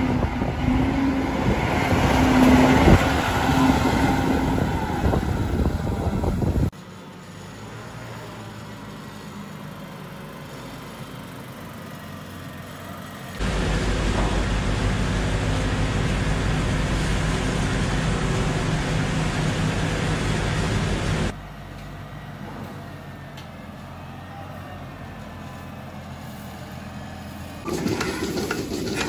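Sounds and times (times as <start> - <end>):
straw shredder rushing din: 0.0 - 6.7, 13.4 - 21.3, 27.6 - 29.0
tractor engine running: 0.0 - 24.2, 24.8 - 29.0.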